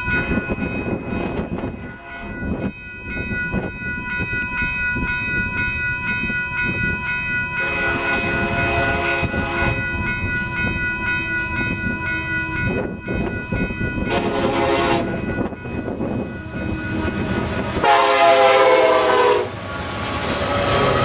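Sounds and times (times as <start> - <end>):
crossing bell ringing: 0.0 - 21.0
train rumble: 0.0 - 21.0
train horn blasts: 7.6 - 9.8, 14.1 - 15.2, 16.9 - 19.6.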